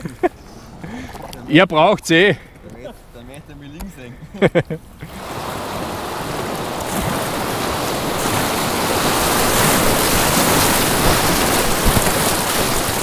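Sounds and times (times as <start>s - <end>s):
whitewater roaring: 5.0s - 13.0s.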